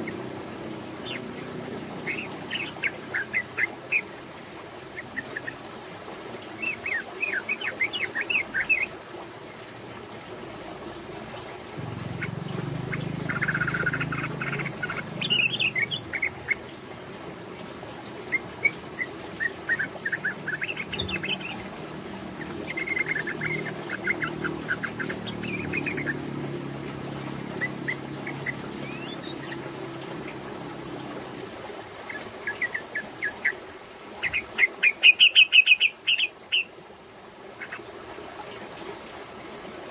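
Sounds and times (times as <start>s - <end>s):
bird chattering calls: 12.2s - 16.6s.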